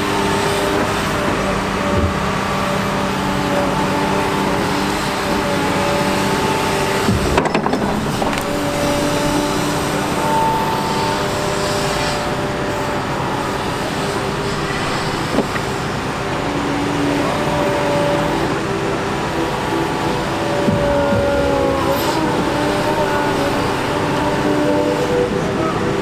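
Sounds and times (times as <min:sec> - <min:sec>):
excavator diesel engine running: 0:00.0 - 0:26.0
hydraulics whining: 0:00.0 - 0:26.0
sharp knocks: 0:00.8 - 0:02.6, 0:07.1 - 0:09.7.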